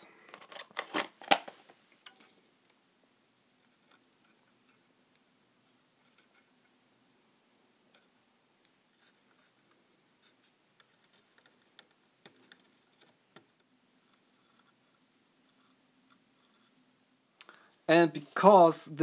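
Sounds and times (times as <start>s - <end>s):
small clicks and scratches: 3.6s - 6.8s, 7.9s - 16.8s.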